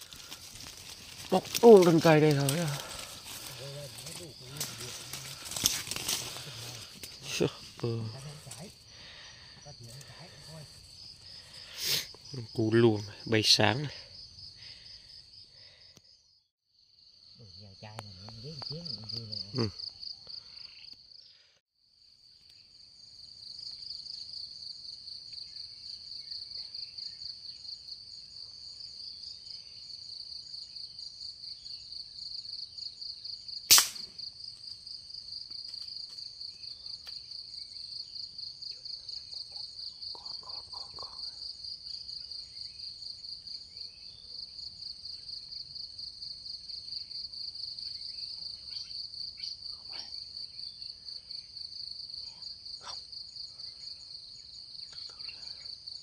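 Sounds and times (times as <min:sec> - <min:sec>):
insects droning: 0:00.0 - 0:56.0
sharp crack: 0:33.7 - 0:34.2.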